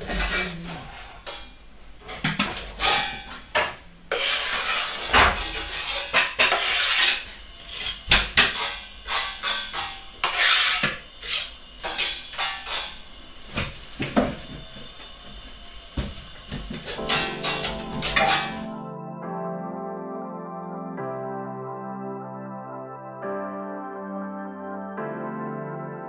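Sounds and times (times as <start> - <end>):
trowel scraping brickwork: 4.1 - 13.0, 16.7 - 18.8
background music: 17.0 - 26.0.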